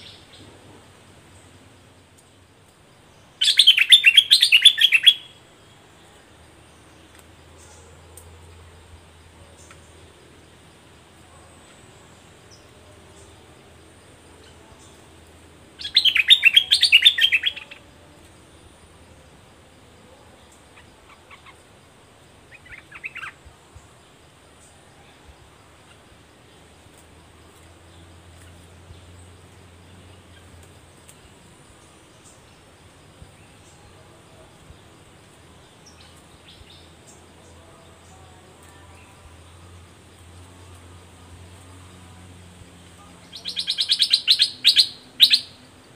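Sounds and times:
low steady background: 0.0s - 45.9s
bird chattering song: 3.4s - 5.4s, 15.8s - 17.8s, 22.5s - 23.4s, 43.1s - 45.7s.

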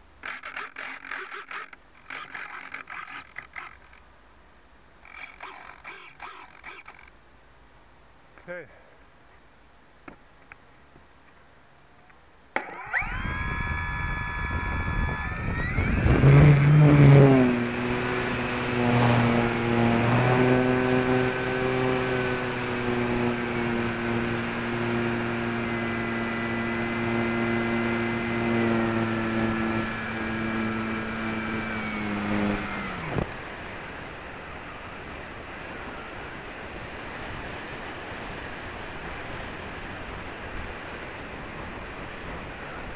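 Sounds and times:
electric motor propeller whine: 0.2s - 4.0s, 5.0s - 7.1s, 12.6s - 42.9s
wind rushing over microphone: 13.0s - 25.0s.

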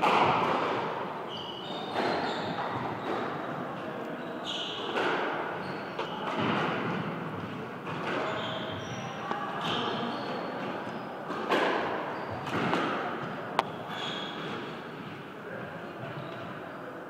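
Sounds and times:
squash ball hits echoing: 0.0s - 1.2s, 4.8s - 15.3s
shoes squeaking on hardwood floor: 1.2s - 11.3s, 12.1s - 15.2s.

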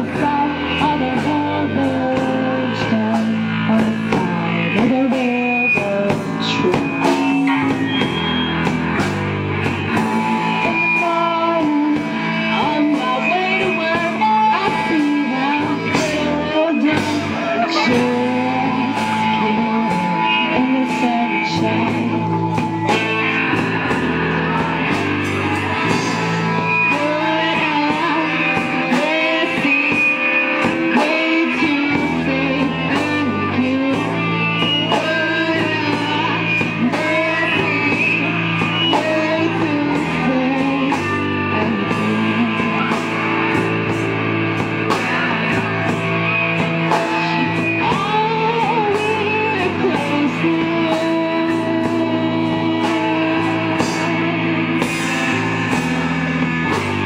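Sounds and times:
woman singing: 0.0s - 8.2s, 9.8s - 23.1s, 24.3s - 45.8s, 46.6s - 55.1s
bass line: 0.0s - 57.0s
electric guitars: 0.0s - 57.0s.

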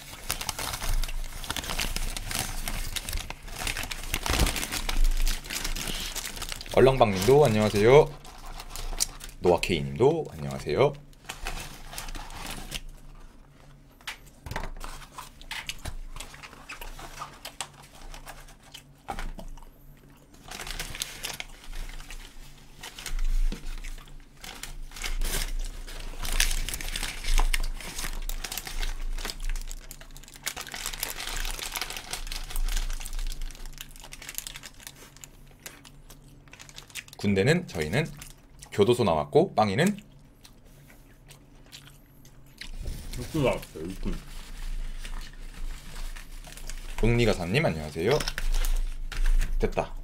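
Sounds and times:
paper wrappers crinkling: 0.0s - 50.0s.

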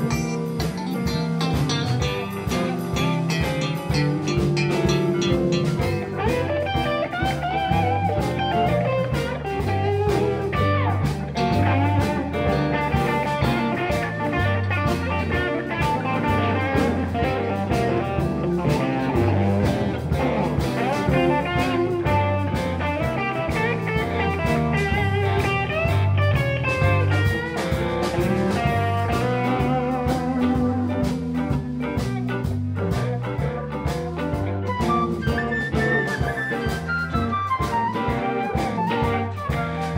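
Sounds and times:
repeating bass pattern: 0.0s - 6.5s
bending electric guitar lead: 0.0s - 39.9s
blues band playing: 0.0s - 39.9s.

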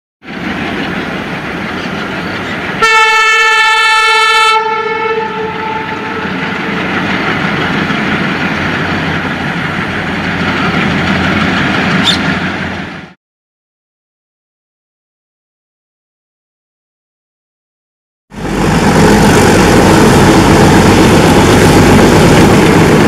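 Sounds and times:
diesel locomotive engines: 0.2s - 13.2s, 18.3s - 23.0s
train horn blast: 2.8s - 6.5s.

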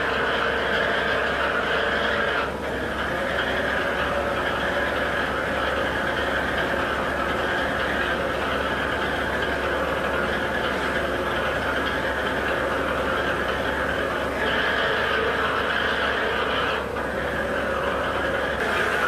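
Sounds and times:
machinery hum: 0.0s - 19.0s.

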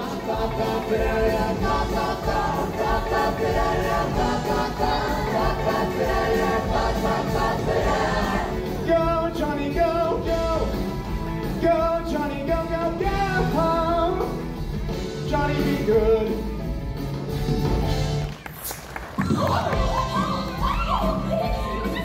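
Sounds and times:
cast singing: 0.0s - 10.8s.

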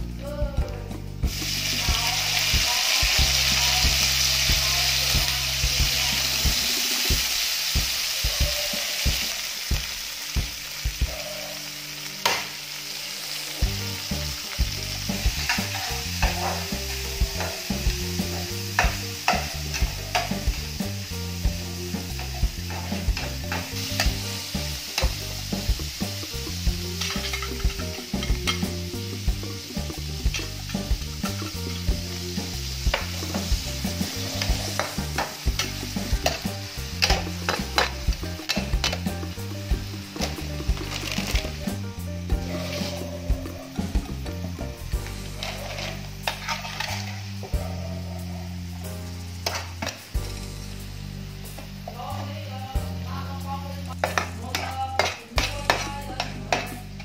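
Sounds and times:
frying sizzle in hot oil: 0.9s - 57.0s
spatula scraping pan: 15.0s - 20.6s, 22.0s - 24.3s, 32.6s - 39.1s, 42.3s - 44.1s, 45.0s - 50.0s.

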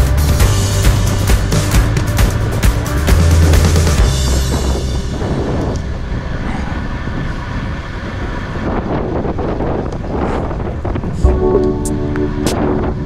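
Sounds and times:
wind buffeting microphone: 4.1s - 13.0s.

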